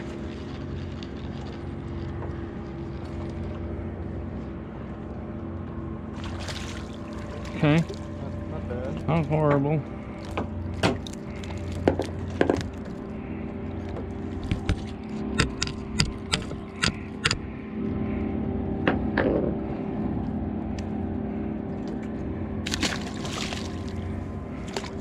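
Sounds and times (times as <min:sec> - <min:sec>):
boat engine idling: 0:00.0 - 0:25.0
fish splashing into water: 0:06.1 - 0:08.0, 0:22.6 - 0:25.0
sharp clicks and knocks: 0:14.5 - 0:17.4.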